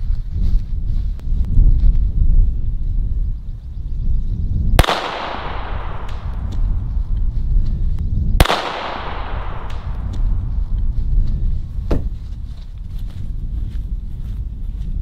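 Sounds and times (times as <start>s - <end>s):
gunshots with echo: 4.8s - 6.8s, 8.4s - 10.4s.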